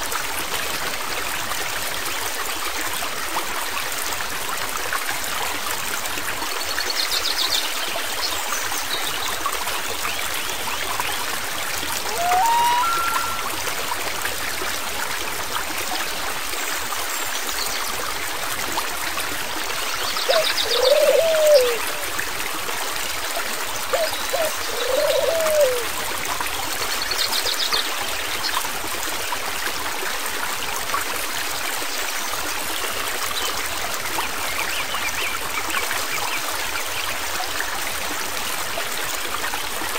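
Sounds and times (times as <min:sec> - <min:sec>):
stream flowing: 0:00.0 - 0:39.9
birds calling: 0:12.0 - 0:13.6, 0:20.3 - 0:22.0, 0:23.9 - 0:25.9.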